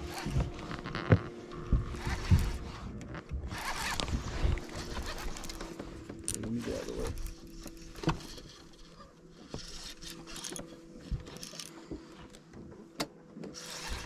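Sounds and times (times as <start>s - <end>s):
fishing reel clicks: 9.6s - 11.7s.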